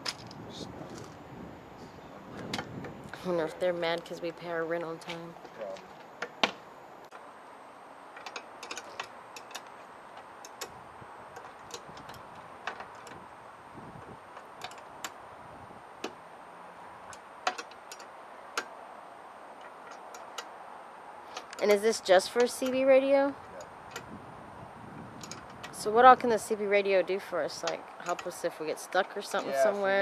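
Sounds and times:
metal hardware clicks and taps: 17.1s - 18.7s.

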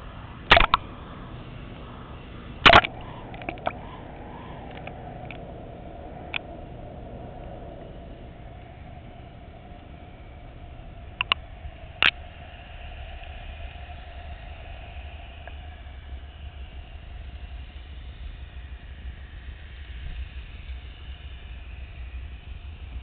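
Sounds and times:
faint hum: 0.0s - 23.0s
underwater low rumble: 0.0s - 23.0s
sharp clicks: 0.4s - 1.0s, 2.6s - 6.6s, 8.3s - 12.2s.

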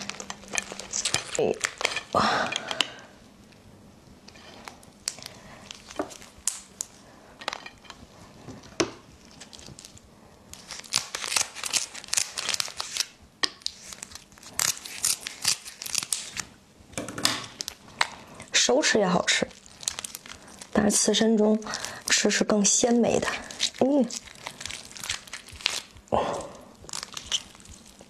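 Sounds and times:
lobster shell cracking: 0.0s - 3.0s, 4.7s - 8.0s, 8.7s - 18.5s, 19.5s - 20.8s, 23.5s - 26.1s, 26.7s - 28.0s.

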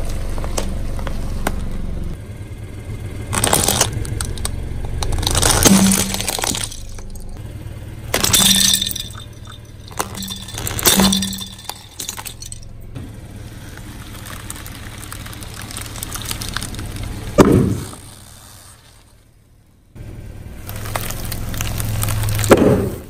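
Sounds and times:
car engine humming: 0.0s - 23.0s
foam ball crunching: 3.2s - 7.4s, 8.1s - 12.6s, 13.5s - 19.3s, 20.5s - 23.0s
plastic cubes cracking under tyre: 3.3s - 7.4s, 13.6s - 19.2s, 20.6s - 23.0s
plastic pieces clattering on concrete: 3.3s - 7.4s, 8.2s - 12.6s.

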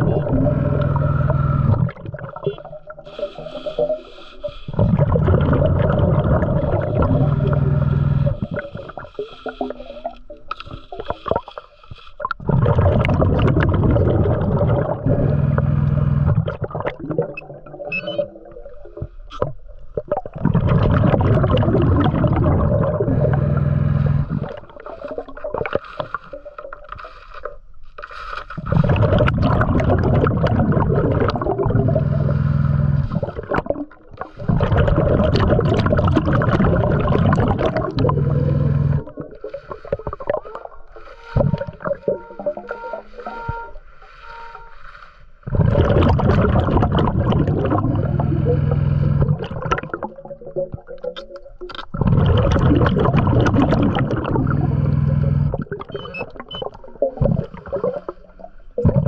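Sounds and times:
steady low hum: 0.0s - 2.0s, 3.1s - 10.0s, 13.1s - 16.5s, 20.8s - 25.2s, 28.6s - 33.5s, 34.3s - 49.4s, 54.1s - 55.7s
underwater breath bubbles: 0.0s - 27.4s, 28.3s - 59.0s
scrapes and clicks: 7.4s - 12.4s.

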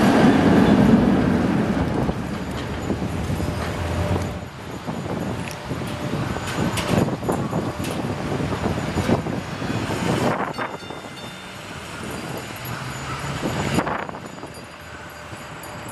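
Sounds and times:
wheels clunking on track: 0.0s - 9.4s
street hum: 0.0s - 15.9s
streetcar rolling on rails: 0.0s - 15.9s.

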